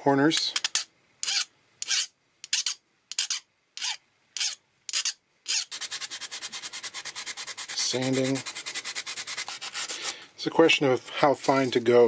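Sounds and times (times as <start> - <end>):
hand file rasping on brass: 1.2 - 10.2.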